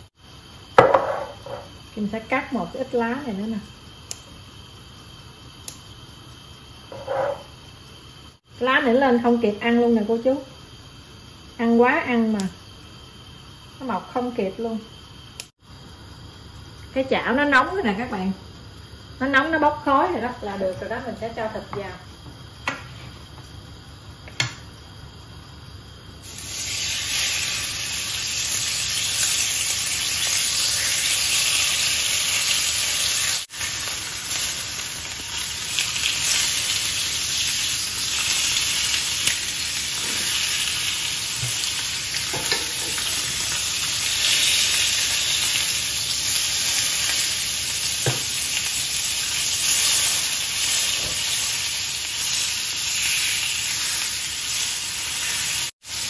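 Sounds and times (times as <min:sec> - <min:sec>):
steaks sizzling on grill pan: 0:26.0 - 0:56.0.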